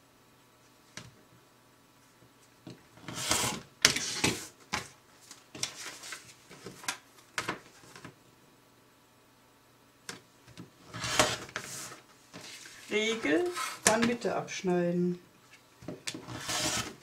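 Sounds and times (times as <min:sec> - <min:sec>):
rotary cutter slicing paper and fabric: 0:03.0 - 0:04.5, 0:10.9 - 0:12.0, 0:13.4 - 0:14.0, 0:16.1 - 0:17.0
paper rustling: 0:03.2 - 0:08.1, 0:11.0 - 0:14.1.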